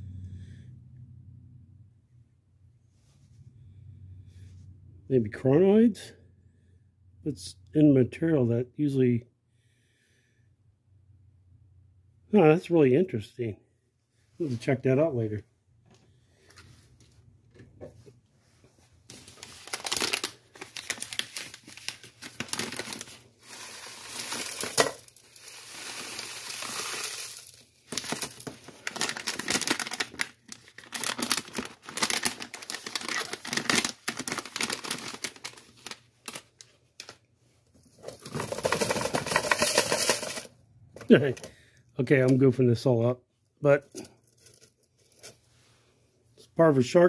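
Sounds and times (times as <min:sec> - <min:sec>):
bag crinkling: 0:19.1 - 0:37.2, 0:37.8 - 0:40.5
rocks rattling in a sieve: 0:22.8 - 0:30.1, 0:38.0 - 0:40.5
gravel and sand pouring into plastic: 0:23.4 - 0:28.4.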